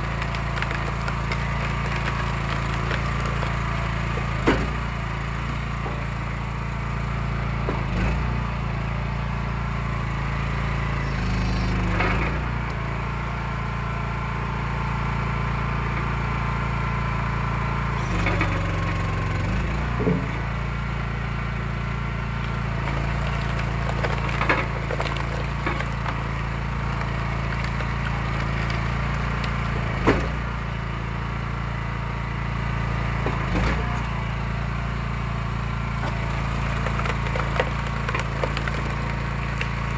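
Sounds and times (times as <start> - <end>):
wood cracking apart: 0.0 - 7.2, 22.2 - 31.3, 35.4 - 39.9
log splitter engine running: 0.0 - 39.9.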